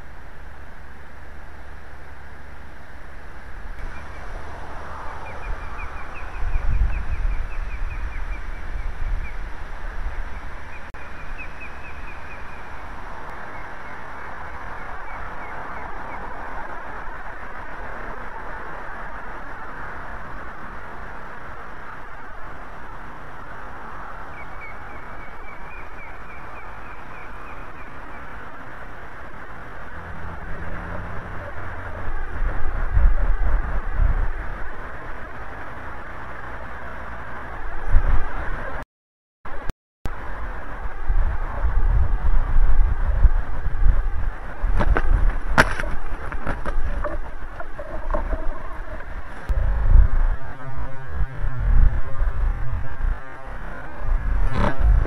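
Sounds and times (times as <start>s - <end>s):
wind rumble on microphone: 0.0s - 38.8s, 39.5s - 55.0s
osprey alarm calls: 45.5s - 49.5s.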